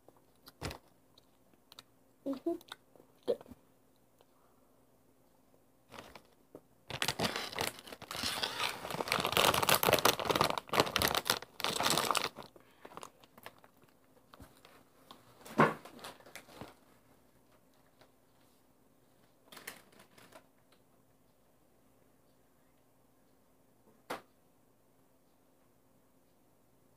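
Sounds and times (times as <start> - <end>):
plastic chip bag crinkling: 5.9 - 14.7, 15.9 - 16.8, 19.5 - 20.5.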